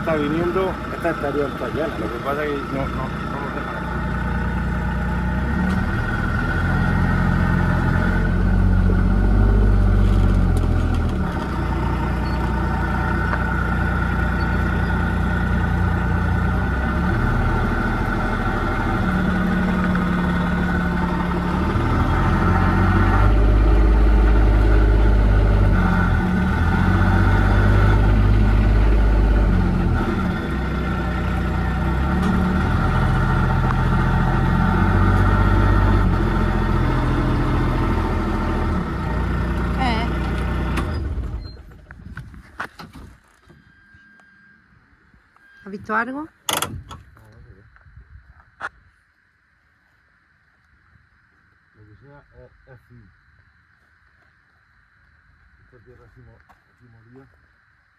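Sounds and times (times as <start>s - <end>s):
vehicle engine revving: 0.0s - 41.8s.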